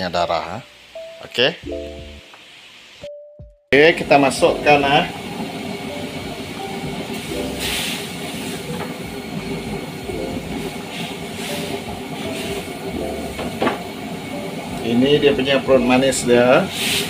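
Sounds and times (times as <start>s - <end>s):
water heating in a wok: 3.8s - 17.0s.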